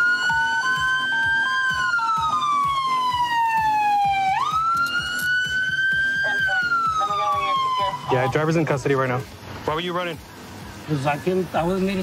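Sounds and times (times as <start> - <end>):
two-tone siren: 0.0 - 8.4
police siren wailing: 0.0 - 8.6.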